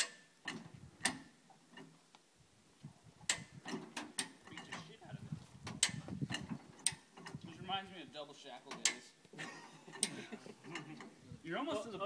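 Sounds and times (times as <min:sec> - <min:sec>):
farm jack metallic clacks: 0:03.3 - 0:05.0, 0:05.6 - 0:07.7, 0:08.6 - 0:09.1.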